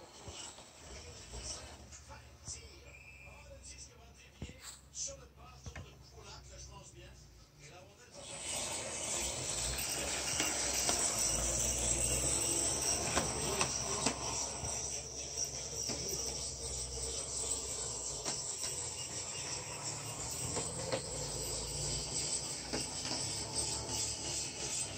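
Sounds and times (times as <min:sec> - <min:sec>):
electric motor whine: 0:08.2 - 0:24.9
wheels clicking on rails: 0:08.2 - 0:24.9.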